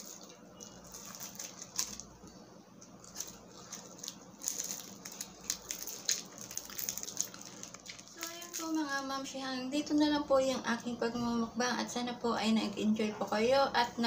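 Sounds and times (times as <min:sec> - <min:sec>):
foil wrapper crinkling: 0:00.0 - 0:10.0.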